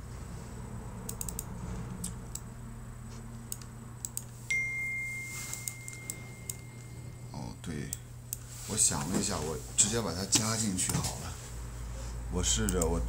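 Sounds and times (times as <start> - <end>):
steady low hum: 0.0 - 13.0
computer keyboard clicks: 1.1 - 2.4, 3.5 - 4.3
mouse clicks: 1.1 - 2.4
thin high tone: 4.5 - 7.7.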